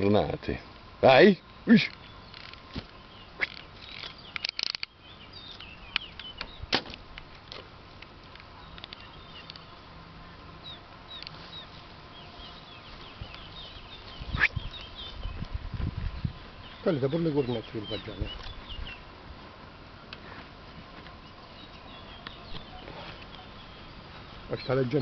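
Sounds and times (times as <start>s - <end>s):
birds chirping: 0.0s - 25.0s
rustle: 0.0s - 25.0s
sharp clicks: 1.5s - 5.0s.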